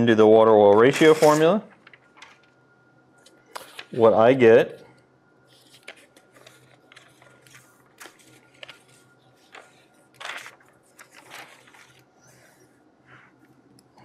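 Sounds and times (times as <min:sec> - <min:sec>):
low room hum: 0:00.0 - 0:14.0
paper rustling on a desk: 0:00.7 - 0:02.6, 0:03.3 - 0:04.2, 0:05.4 - 0:13.5.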